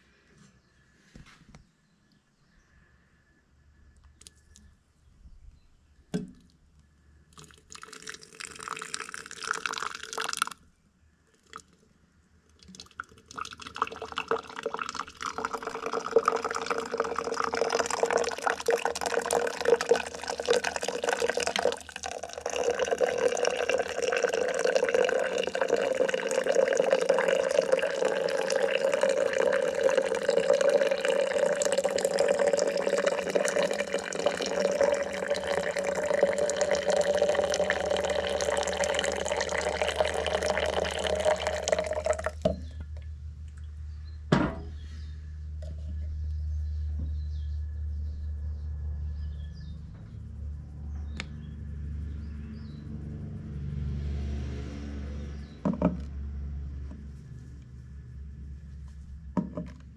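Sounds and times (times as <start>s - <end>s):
water pouring into glass: 7.4s - 10.6s, 12.6s - 42.7s.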